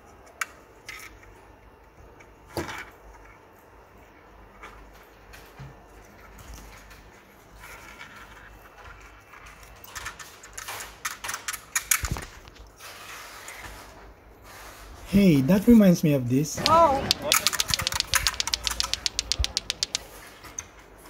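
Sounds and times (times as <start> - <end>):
plastic clicks and rattles: 16.6 - 20.0
sharp knock: 16.6 - 20.0.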